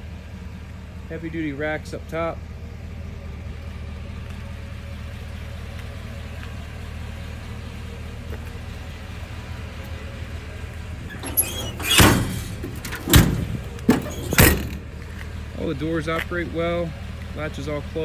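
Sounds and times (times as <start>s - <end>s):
low rumble: 7.4s - 15.6s
metal doors clunking shut: 11.0s - 15.0s.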